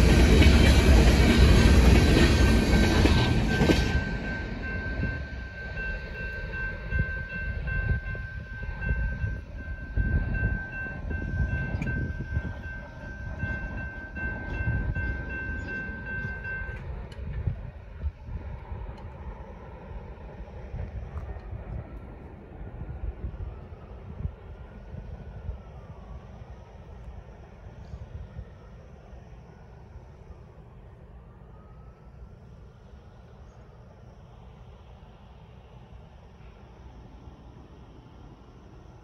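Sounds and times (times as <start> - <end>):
crossing warning bell ringing: 0.0 - 17.3
low rumble: 0.0 - 26.0
train wheels on rails: 0.0 - 30.7.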